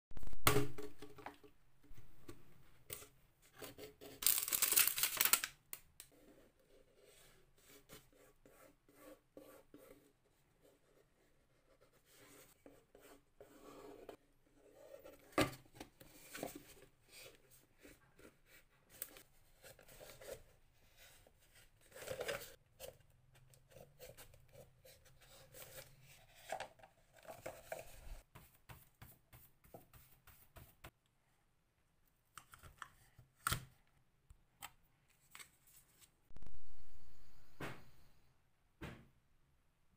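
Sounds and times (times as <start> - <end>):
hands handling craft materials: 0.7 - 6.6.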